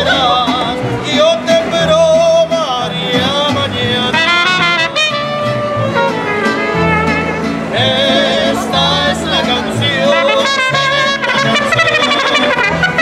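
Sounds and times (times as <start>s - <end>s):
strummed guitars: 0.0s - 13.0s
trumpet melody with vibrato: 4.1s - 7.8s, 10.0s - 13.0s.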